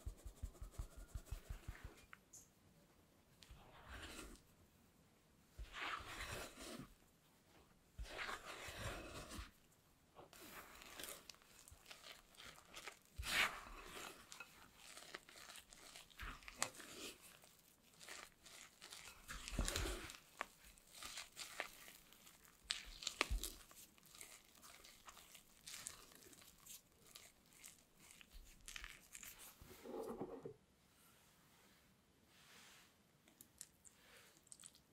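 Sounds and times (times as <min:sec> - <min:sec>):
spatula scraping batter in glass bowl: 0:03.5 - 0:04.4, 0:05.6 - 0:06.9, 0:08.0 - 0:09.6, 0:10.3 - 0:30.4.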